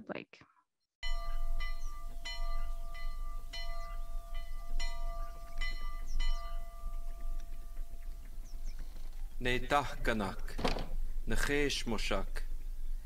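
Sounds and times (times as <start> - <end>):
bell-like strikes ringing: 1.0 - 8.2
low steady rumble: 1.1 - 13.0.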